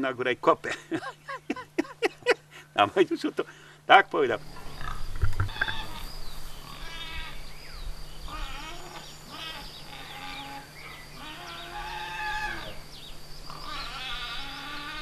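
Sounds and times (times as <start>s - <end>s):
animals calling: 3.5s - 15.0s.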